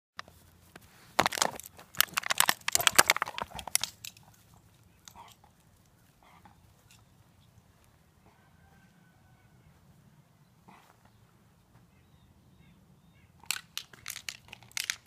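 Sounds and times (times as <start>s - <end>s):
dog scrabbling at plastic ball: 1.2s - 3.9s.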